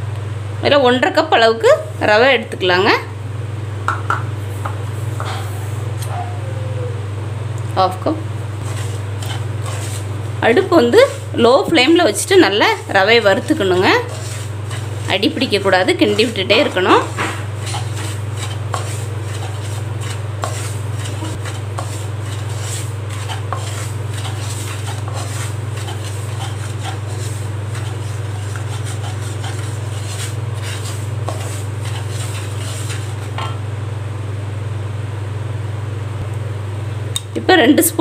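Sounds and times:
steady low hum: 0:00.0 - 0:38.0
spatula scraping semolina in pan: 0:08.6 - 0:33.6.

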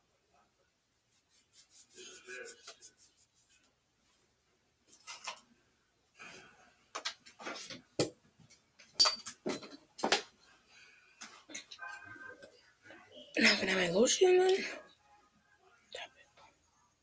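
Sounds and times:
small objects knocking and clattering: 0:07.0 - 0:10.3.

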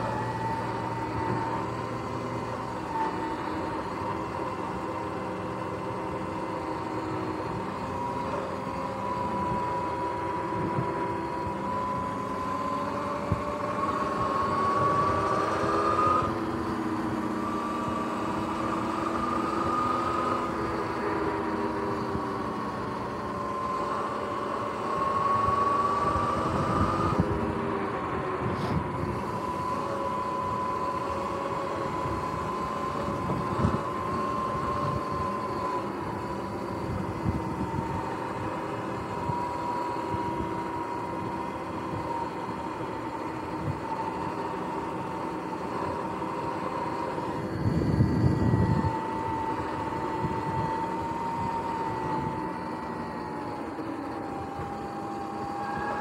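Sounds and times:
electric motor whine: 0:00.0 - 0:56.0
wind noise: 0:08.9 - 0:12.3, 0:13.0 - 0:20.5, 0:24.9 - 0:30.8, 0:31.5 - 0:42.5, 0:47.1 - 0:53.0.

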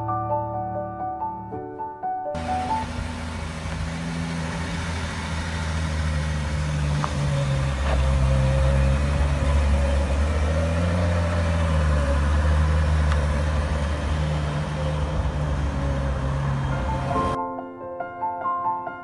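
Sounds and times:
car engine driving away: 0:02.4 - 0:17.4.

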